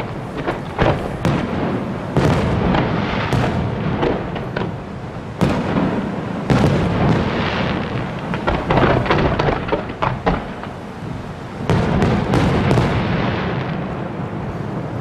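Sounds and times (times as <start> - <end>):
fireworks shell bursts rumbling: 0.0 - 10.9
rapid firework cracks: 0.0 - 13.9
sharp firework reports: 0.0 - 15.0.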